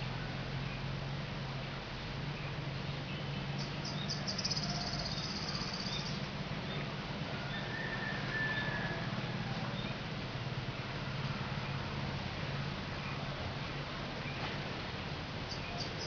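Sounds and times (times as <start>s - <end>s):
bird trilling: 3.6s - 6.2s.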